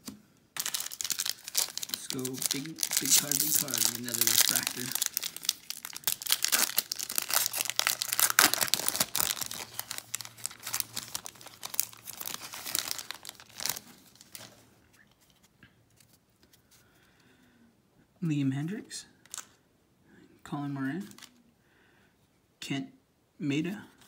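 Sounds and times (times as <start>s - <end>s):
plastic wrapper crinkling and tearing: 0.6s - 14.6s, 19.3s - 19.6s.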